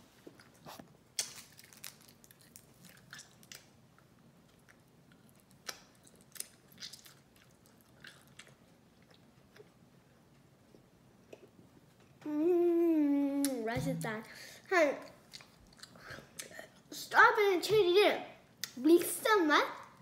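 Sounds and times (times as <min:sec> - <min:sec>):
child chewing gum: 0:00.3 - 0:09.8, 0:15.0 - 0:16.9.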